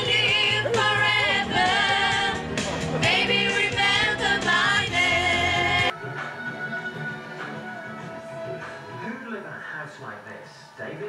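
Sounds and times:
women singing together: 0:00.0 - 0:05.9
music through a pa system: 0:00.0 - 0:11.0.

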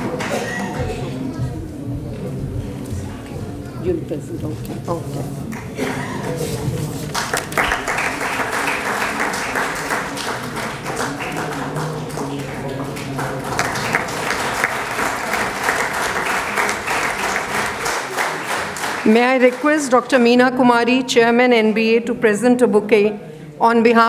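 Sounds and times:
audience applauding: 0:07.0 - 0:20.0.

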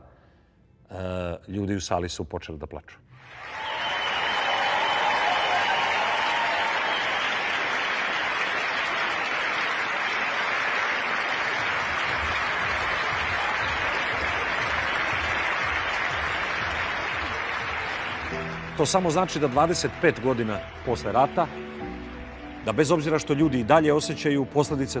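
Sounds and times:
audience applauding: 0:03.2 - 0:23.2.

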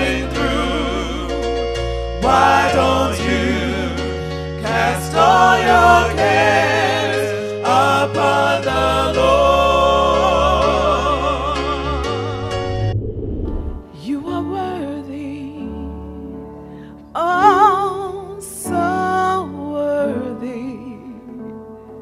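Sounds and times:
voices singing gospel song: 0:00.0 - 0:12.5.

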